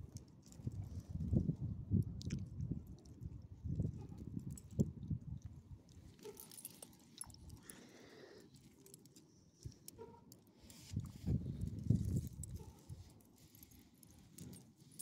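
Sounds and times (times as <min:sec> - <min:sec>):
dog collar tags jingling: 0:06.1 - 0:07.8.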